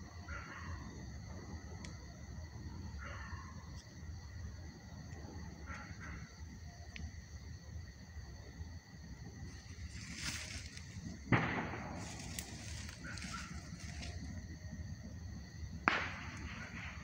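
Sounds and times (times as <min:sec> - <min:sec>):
night insects chirring: 0:00.0 - 0:17.0
sharp bangs: 0:11.2 - 0:14.2, 0:15.8 - 0:17.0.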